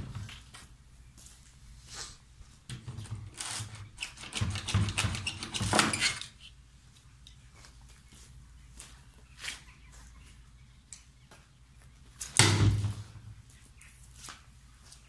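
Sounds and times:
footsteps: 7.5s - 10.4s.

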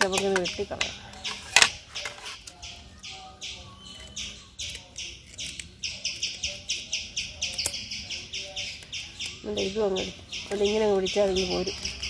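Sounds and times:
bird raspy chirps: 0.0s - 12.0s.

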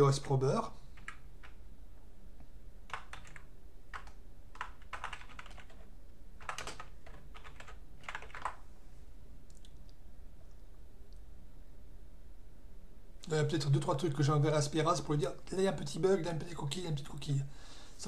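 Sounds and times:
computer keyboard typing: 1.0s - 1.6s, 2.9s - 8.6s.

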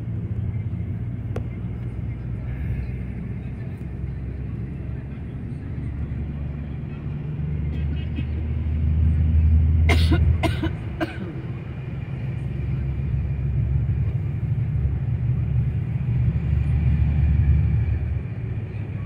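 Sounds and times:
bus engine and road noise: 0.0s - 19.0s
person coughing: 9.9s - 11.4s.

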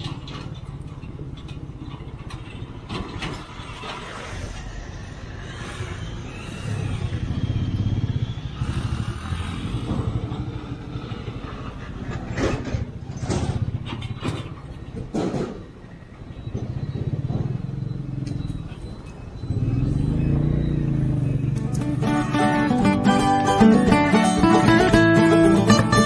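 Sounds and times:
motorcycle engine running: 6.0s - 15.6s, 16.4s - 26.0s.

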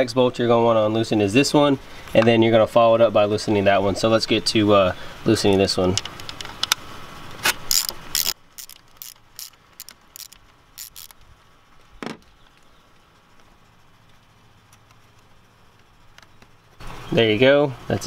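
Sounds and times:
socket ratchet clicking: 7.4s - 11.2s.

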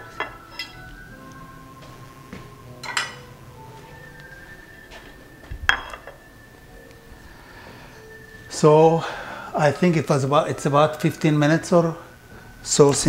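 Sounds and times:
dishes clinking: 0.0s - 1.0s, 2.8s - 3.3s, 5.7s - 6.2s.

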